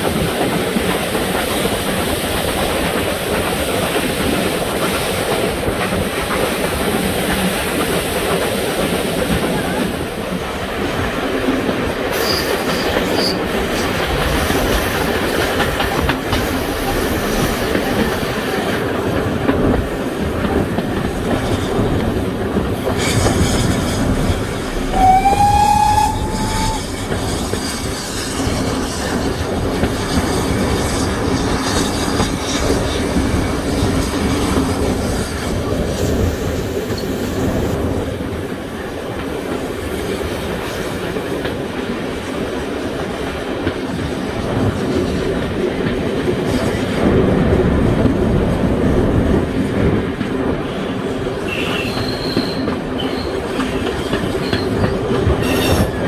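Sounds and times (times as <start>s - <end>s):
steam train running: 0.0s - 56.0s
train whistle: 24.7s - 27.8s, 51.5s - 53.2s.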